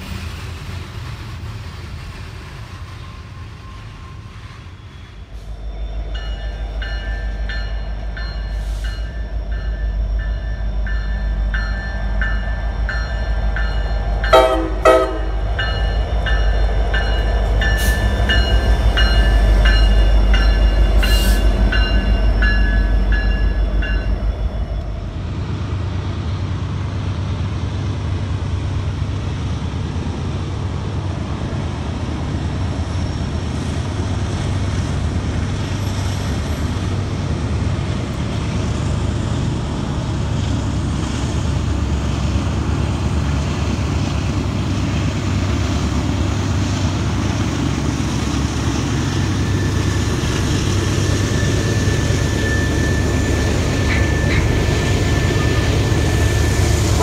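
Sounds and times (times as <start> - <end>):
diesel locomotive rumble: 0.0 - 57.0.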